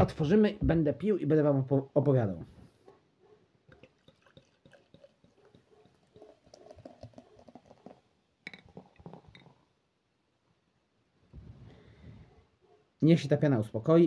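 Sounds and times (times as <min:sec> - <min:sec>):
beer pouring into a glass: 0:03.7 - 0:09.7.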